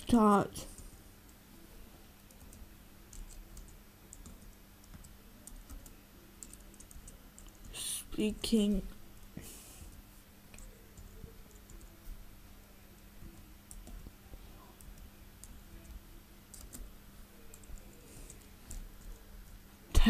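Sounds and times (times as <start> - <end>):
faint laptop keyboard typing: 0.0 - 20.0.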